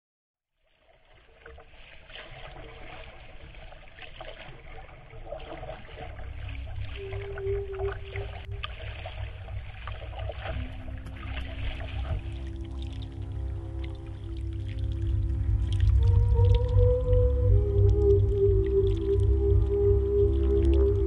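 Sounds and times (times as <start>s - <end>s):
water splashing against a kayak: 0.6s - 21.0s
low rumble: 5.9s - 21.0s.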